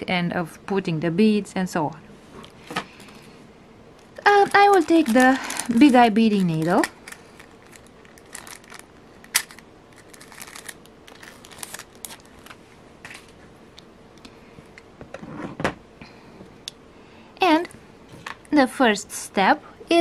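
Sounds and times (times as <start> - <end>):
small tools rustling and clicking: 4.0 - 13.4.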